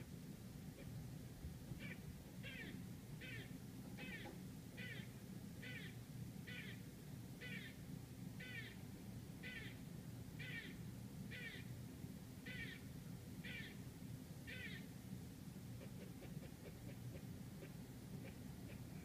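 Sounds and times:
low steady hum: 0:00.0 - 0:19.0
squirrel barking: 0:01.8 - 0:06.8, 0:07.4 - 0:07.8, 0:08.4 - 0:08.8, 0:09.4 - 0:09.8, 0:10.4 - 0:11.7, 0:12.4 - 0:13.8, 0:14.5 - 0:14.9, 0:15.8 - 0:19.0.

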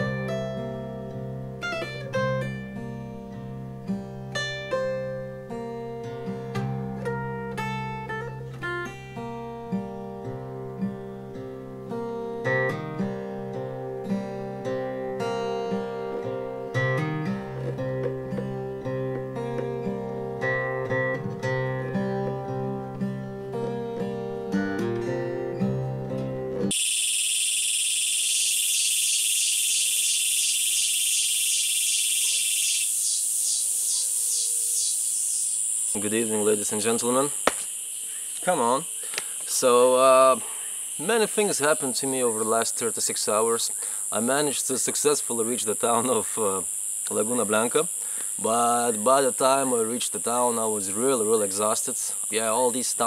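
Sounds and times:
acoustic guitar playing: 0:00.0 - 0:26.7, 0:35.9 - 0:37.4, 0:41.0 - 0:47.8
insects shrilling: 0:26.7 - 0:53.0
pulsing insect trill: 0:26.7 - 0:53.0.

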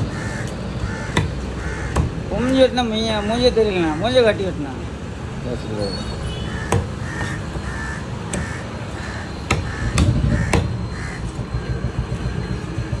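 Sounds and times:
crows cawing: 0:00.0 - 0:02.8, 0:06.5 - 0:11.4
knife chopping on wooden block: 0:01.1 - 0:02.2.

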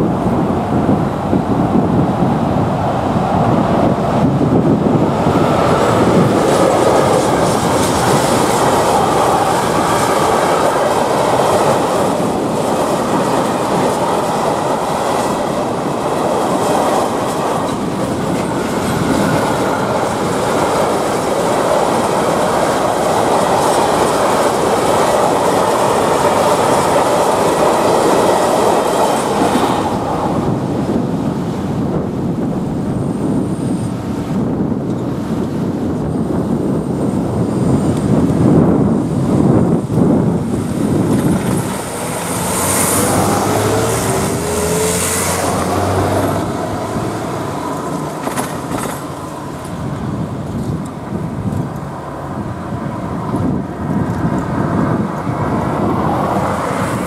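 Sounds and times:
freight train rumbling past: 0:00.0 - 0:57.0
wheels clattering over rail joints: 0:04.4 - 0:31.0, 0:38.0 - 0:57.0.

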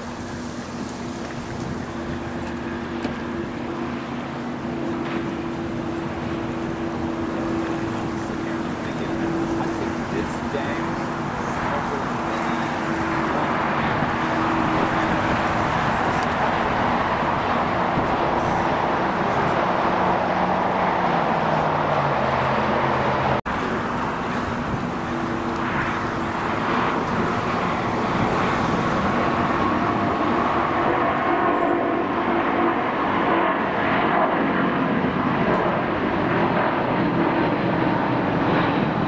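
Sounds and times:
jet aircraft noise: 0:00.0 - 0:39.0
road traffic: 0:00.0 - 0:39.0.

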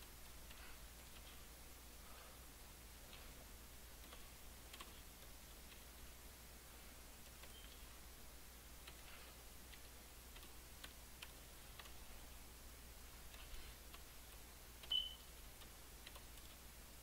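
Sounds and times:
short high beep: 0:14.9 - 0:15.2.

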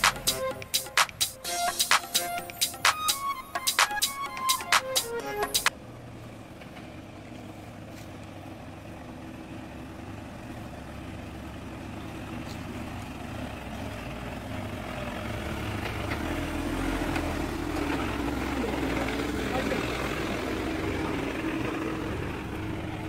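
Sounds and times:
vehicle engine running slowly: 0:05.6 - 0:23.0.

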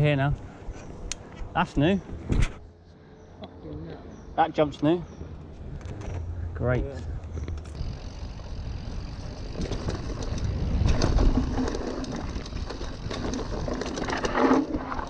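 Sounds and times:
wind buffeting microphone: 0:05.2 - 0:13.8
heavy rumble and rattle: 0:05.5 - 0:15.0
bike frame and chain clattering: 0:07.3 - 0:15.0
bike tyres skidding over dirt: 0:07.7 - 0:15.0.

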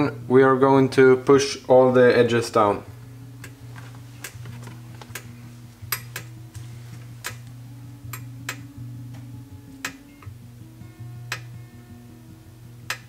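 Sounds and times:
low steady drone: 0:05.2 - 0:13.0.

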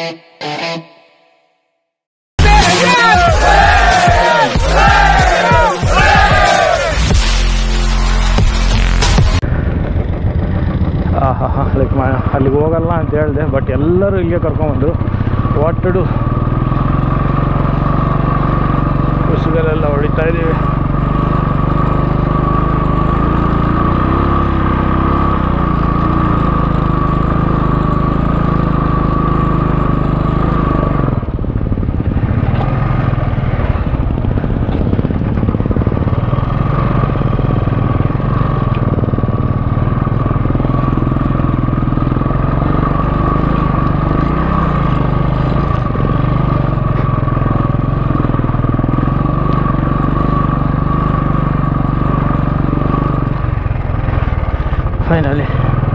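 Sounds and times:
motorcycle engine running: 0:02.4 - 0:55.9.

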